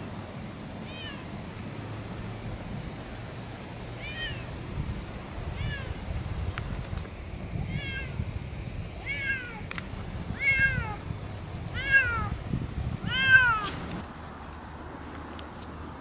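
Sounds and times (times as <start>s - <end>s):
cat meowing: 0.8s - 1.3s, 4.0s - 4.5s, 5.5s - 6.0s, 7.6s - 8.2s, 9.0s - 9.6s, 10.4s - 11.0s, 11.8s - 12.4s, 13.0s - 13.7s.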